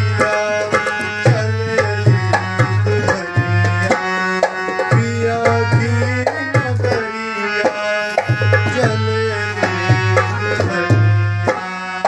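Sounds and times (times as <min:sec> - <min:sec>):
man singing folk song: 0:00.0 - 0:11.2
tabla: 0:00.0 - 0:12.0.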